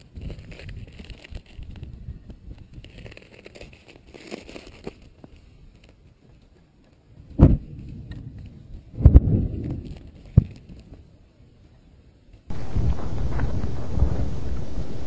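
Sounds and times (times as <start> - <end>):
loud low thumps: 7.4 - 7.8, 12.5 - 15.0
lava crackling and hissing: 12.5 - 15.0.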